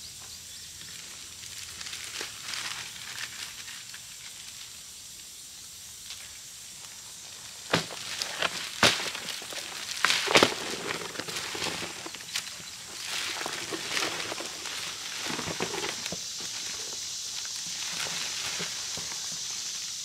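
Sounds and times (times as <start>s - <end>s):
plastic wrapping crinkling: 7.5s - 17.0s.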